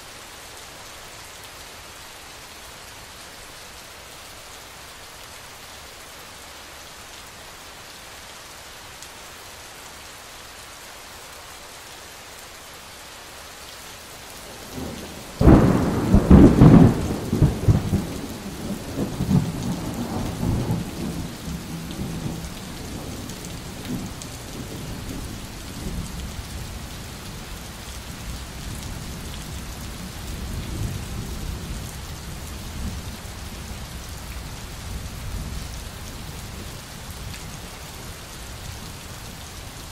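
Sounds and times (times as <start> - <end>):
steady rain: 0.0 - 39.9
thunderclap rumbling: 14.8 - 21.2.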